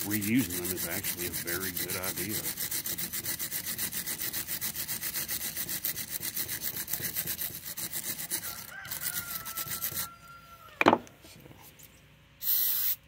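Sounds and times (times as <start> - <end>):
wire brush scrubbing metal: 0.0 - 10.2.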